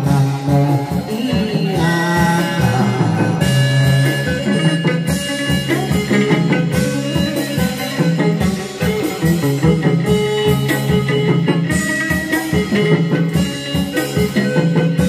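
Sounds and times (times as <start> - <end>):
drums: 0.0 - 15.0
plucked lute notes: 0.0 - 15.0.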